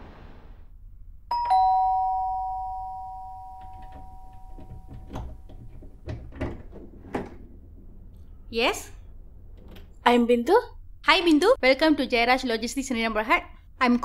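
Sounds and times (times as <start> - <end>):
two-note doorbell chime: 1.3 - 5.5.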